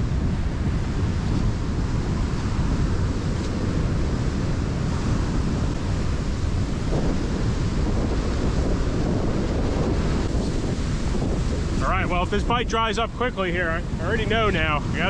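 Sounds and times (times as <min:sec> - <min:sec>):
surf breaking on beach: 0:00.0 - 0:15.0
wind rumbling on microphone: 0:00.0 - 0:15.0.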